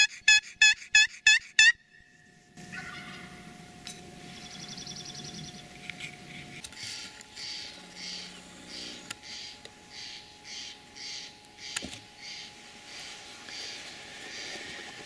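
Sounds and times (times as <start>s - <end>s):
open-air ambience: 0.0s - 15.0s
turkey yelps: 2.7s - 3.3s.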